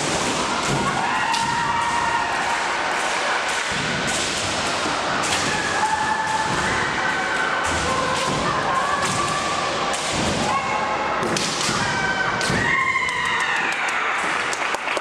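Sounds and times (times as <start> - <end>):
long drawn-out shouts: 0.2 - 3.6
bamboo swords cracking: 5.2 - 6.7.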